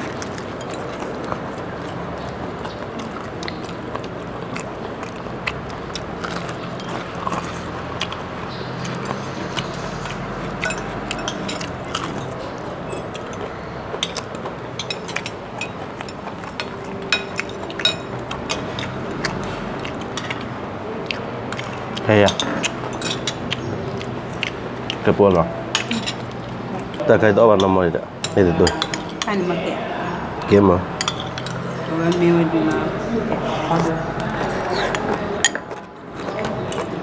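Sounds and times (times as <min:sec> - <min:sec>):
people chewing: 0:00.0 - 0:37.0
steady background hum: 0:00.0 - 0:37.0
spoons clicking on plates: 0:06.2 - 0:23.7, 0:31.0 - 0:32.2.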